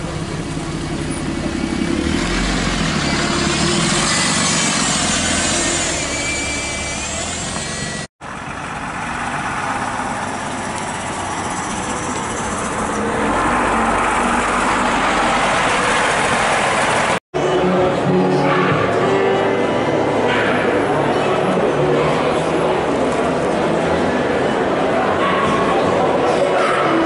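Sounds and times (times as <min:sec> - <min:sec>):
bus diesel engine pulling away: 0:00.0 - 0:18.0
bus passing with high whine: 0:00.0 - 0:18.0.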